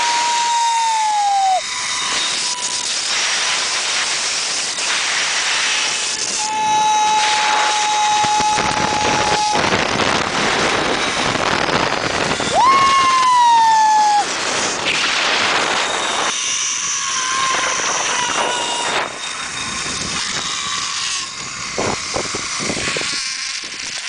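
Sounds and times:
zip-line trolley whine: 0.0s - 24.0s
wind rushing: 5.4s - 16.4s.

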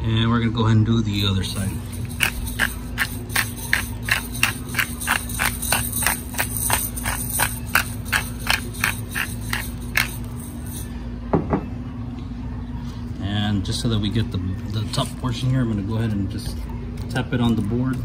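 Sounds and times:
pepper mill grinding: 1.2s - 11.0s, 14.7s - 18.0s.

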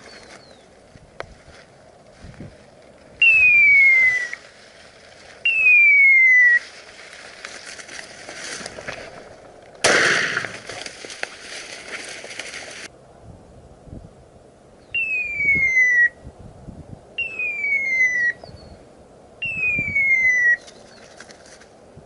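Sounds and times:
loud rustling noise: 10.2s - 12.9s.

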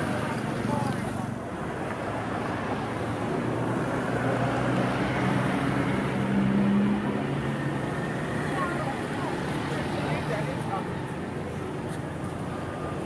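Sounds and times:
street noise: 0.0s - 13.0s.

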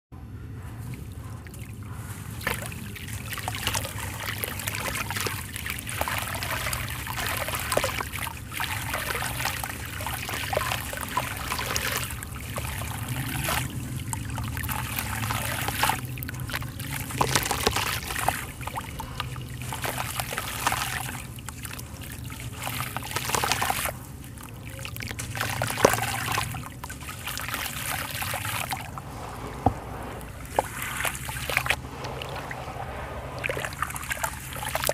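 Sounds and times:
water trickling into tub: 0.9s - 34.9s
gritty crunching of crumbling sand: 27.9s - 34.9s.

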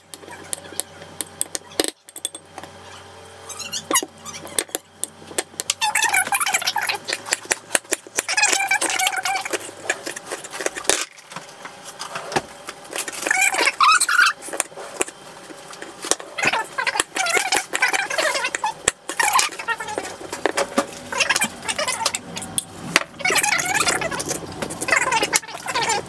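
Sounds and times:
fork mashing avocado in bowl: 3.6s - 11.3s, 11.9s - 22.6s.

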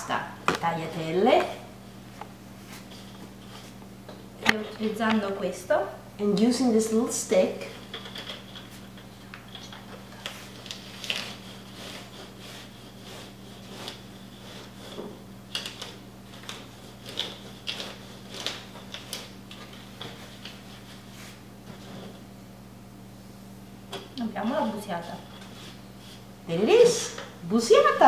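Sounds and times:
low electrical hum: 0.0s - 28.0s
hands working dough on tabletop: 7.6s - 22.3s.

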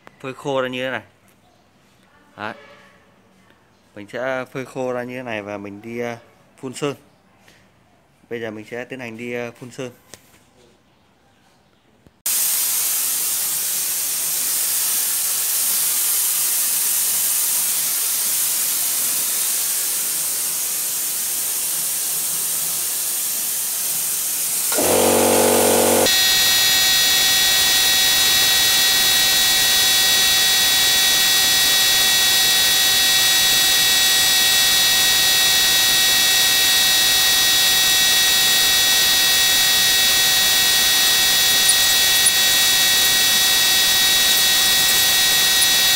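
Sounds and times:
air spray gun hissing: 24.7s - 26.1s
short buzz: 24.7s - 27.0s
steady multi-tone whine: 24.7s - 45.9s.

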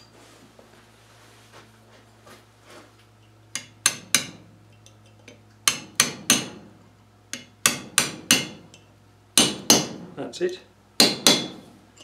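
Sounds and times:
hammer striking metal punch: 3.5s - 4.5s, 5.6s - 10.2s, 11.0s - 11.7s.

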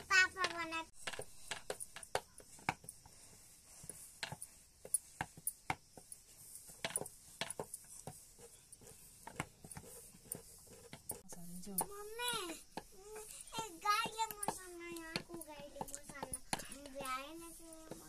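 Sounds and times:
sharp clicks and light knocks: 0.0s - 2.9s.

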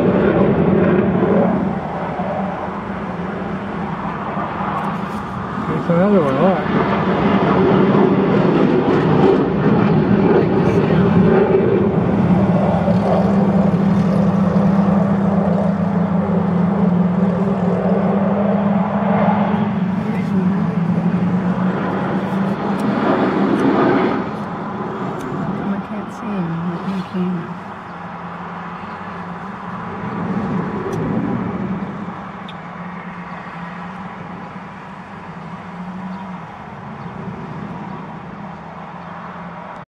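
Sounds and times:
steady low engine drone: 0.0s - 39.8s.

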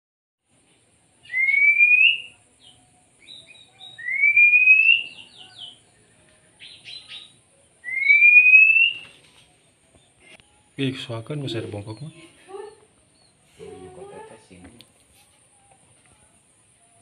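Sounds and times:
bird singing whistles: 1.2s - 5.8s, 6.6s - 9.2s.

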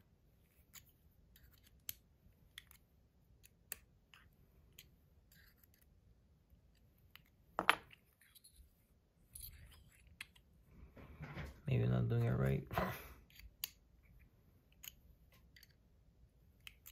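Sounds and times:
small metal clicks and ticks: 14.7s - 15.8s, 16.6s - 16.9s.

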